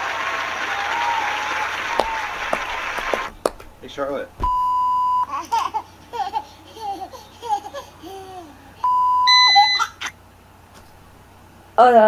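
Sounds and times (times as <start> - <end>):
higher beep: 4.4 - 5.3, 8.8 - 9.9
steady one-tone bleep: 4.4 - 5.3, 8.8 - 9.9
baby laughing and babbling: 5.3 - 8.8, 9.8 - 10.2.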